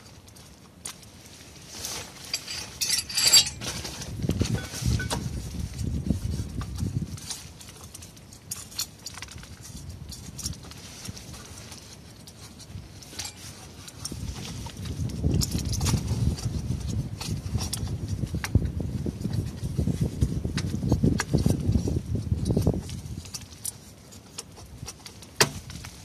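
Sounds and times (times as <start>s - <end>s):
light metallic clicks and clinks: 2.2s - 3.6s, 12.2s - 14.2s
bright jangling clink: 2.3s - 3.6s.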